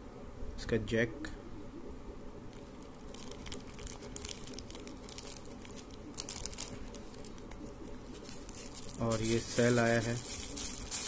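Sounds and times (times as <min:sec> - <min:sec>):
plastic bag crinkling: 0:02.6 - 0:11.0.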